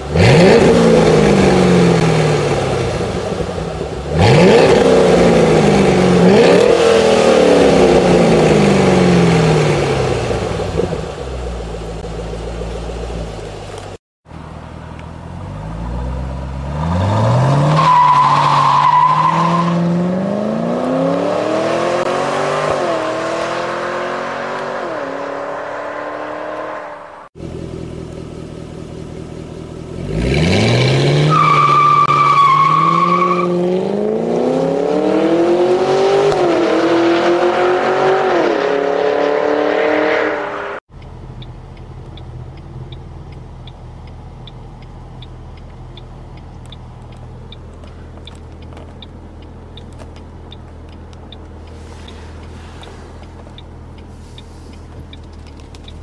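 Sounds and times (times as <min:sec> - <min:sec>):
car engine accelerating: 0:00.0 - 0:56.0
engine hum inside cabin: 0:40.8 - 0:56.0
faint ticking: 0:41.0 - 0:56.0.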